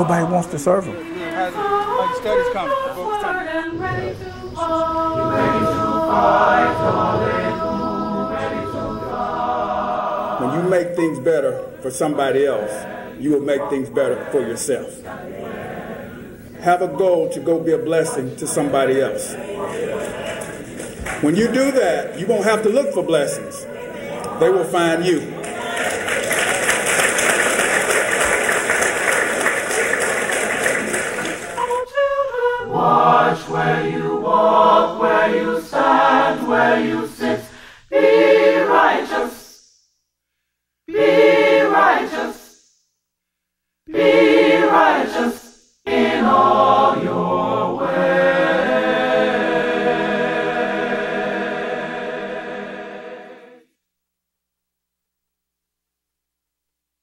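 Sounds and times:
voices singing a held note: 0.0s - 39.6s, 40.9s - 42.6s, 43.9s - 53.6s
audience applauding: 19.3s - 22.4s, 24.0s - 31.8s.

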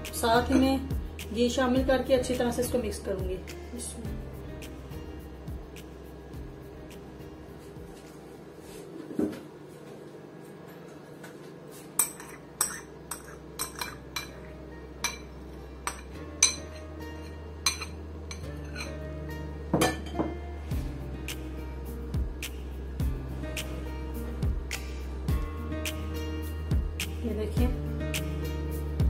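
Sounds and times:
metal spoon clinking on bowls: 0.4s - 0.8s, 12.0s - 19.0s.

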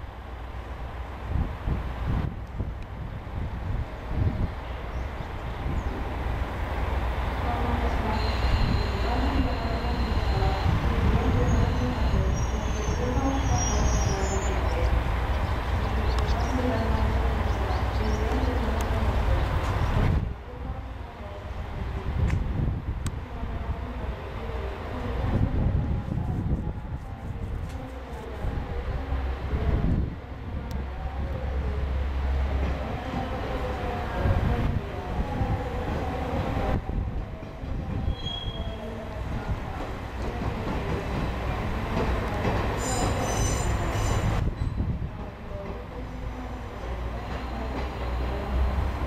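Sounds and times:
train wheels squealing: 8.0s - 10.8s, 11.4s - 14.7s, 38.0s - 38.8s, 42.8s - 44.8s.

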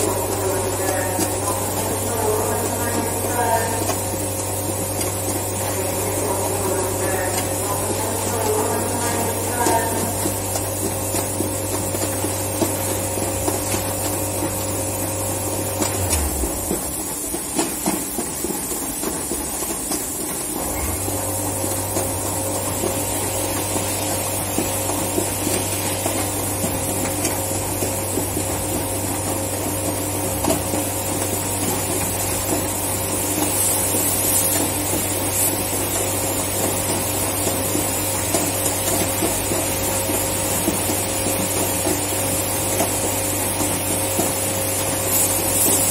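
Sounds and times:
machinery low hum: 0.0s - 42.0s
machinery high whine and hiss: 15.8s - 19.4s, 20.5s - 21.9s.

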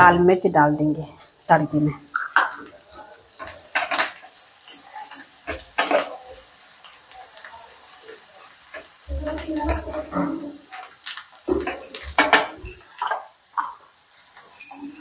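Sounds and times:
light sizzle of frying: 0.0s - 15.0s
spoon clinking in a pan: 3.2s - 13.8s, 14.4s - 15.0s.

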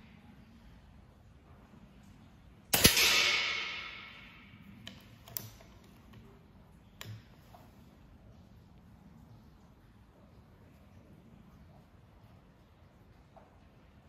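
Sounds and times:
air rifle shot: 2.8s - 4.4s.

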